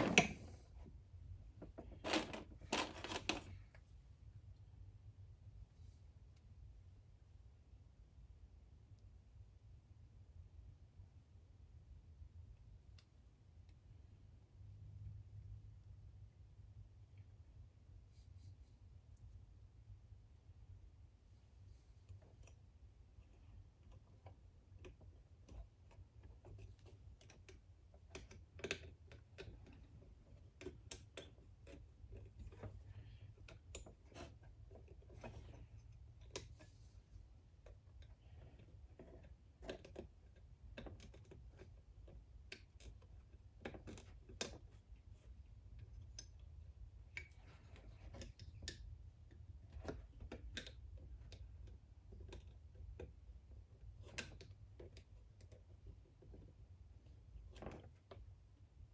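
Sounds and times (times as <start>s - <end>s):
faint clicks and metallic taps: 21.7s - 58.9s.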